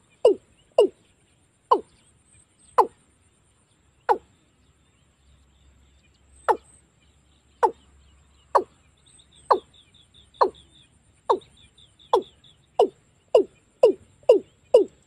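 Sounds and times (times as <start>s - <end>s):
bird deep calling notes: 0.0s - 1.0s, 1.7s - 2.0s, 2.7s - 3.0s, 4.1s - 4.3s, 6.4s - 6.8s, 7.6s - 15.0s
faint high chirps: 0.0s - 4.4s, 5.1s - 15.0s.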